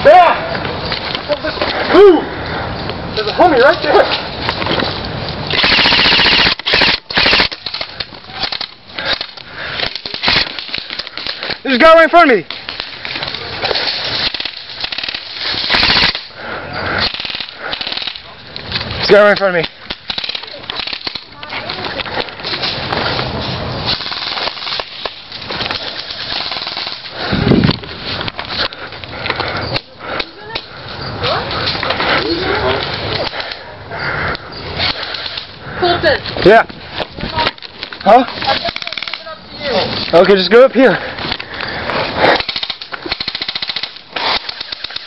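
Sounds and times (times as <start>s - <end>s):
airsoft gun firing bursts: 5.5s - 7.8s, 10.1s - 11.3s, 14.2s - 16.3s, 17.0s - 18.2s, 23.9s - 25.0s, 26.2s - 27.0s, 42.4s - 45.0s.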